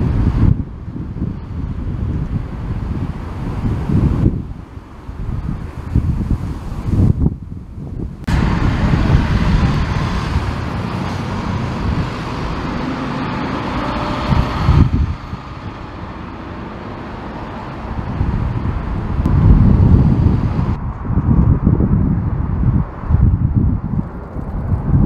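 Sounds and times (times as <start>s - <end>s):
wind buffeting microphone: 0.0s - 25.0s
jet airliner engines roaring: 8.2s - 21.1s.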